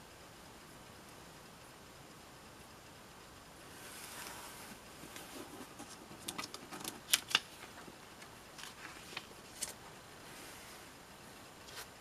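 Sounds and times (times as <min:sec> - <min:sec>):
paper pages rustling: 0:03.8 - 0:10.8, 0:11.6 - 0:12.0.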